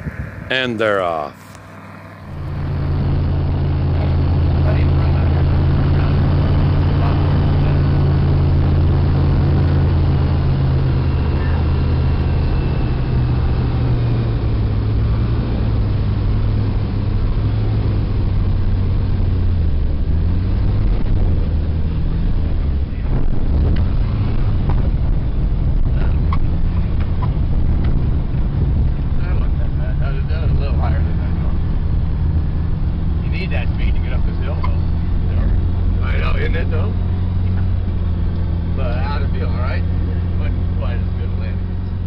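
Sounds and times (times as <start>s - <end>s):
aircraft engine and propeller drone: 0.0s - 26.1s.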